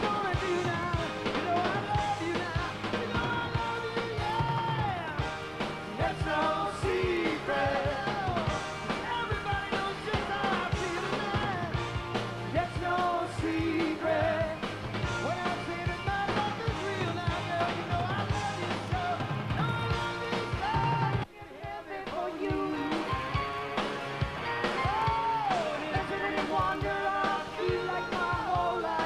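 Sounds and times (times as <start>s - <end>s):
drums: 0.0s - 29.0s
person singing: 15.3s - 23.4s.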